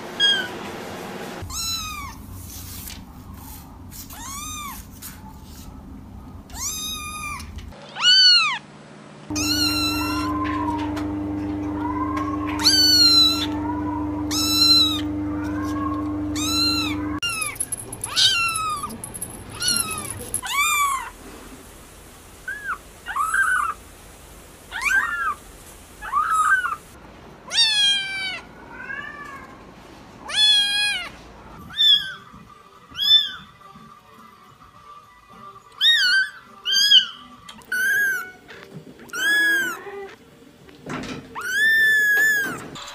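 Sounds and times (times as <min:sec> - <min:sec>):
kittens mewing: 0:09.3 - 0:10.9, 0:11.7 - 0:21.1
steady hum: 0:09.3 - 0:20.4.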